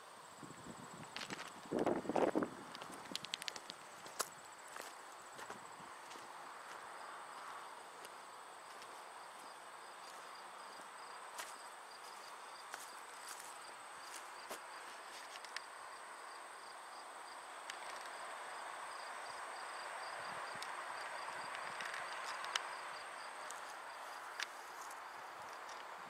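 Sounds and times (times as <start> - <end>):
insects buzzing: 0.0 - 26.0
insects chirping: 0.0 - 26.0
sharp clicks: 2.8 - 3.8.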